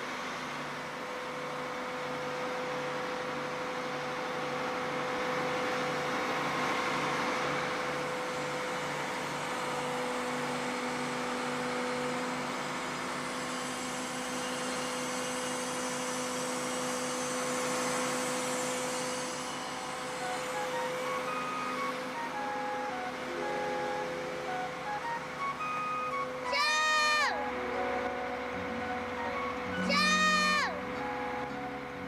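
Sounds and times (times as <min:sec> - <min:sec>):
fire truck machine whine: 0:00.0 - 0:32.0.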